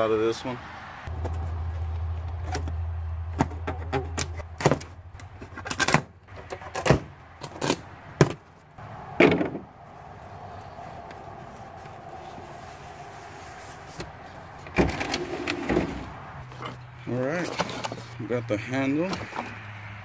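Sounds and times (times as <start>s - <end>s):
crackling scrape: 10.5s - 16.8s.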